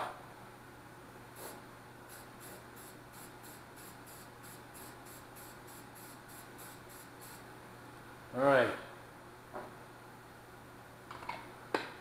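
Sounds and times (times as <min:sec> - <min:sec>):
spray paint can hissing: 0:01.4 - 0:07.4.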